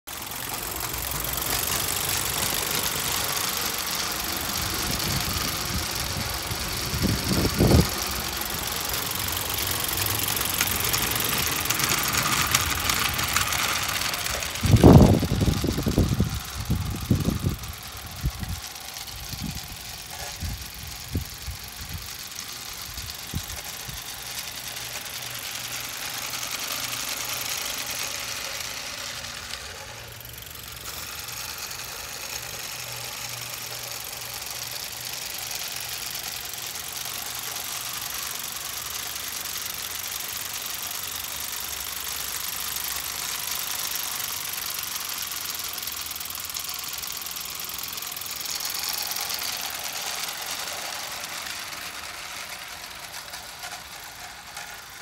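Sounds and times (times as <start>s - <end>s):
steam hissing: 0.1s - 55.0s
steam locomotive beat: 0.2s - 36.3s.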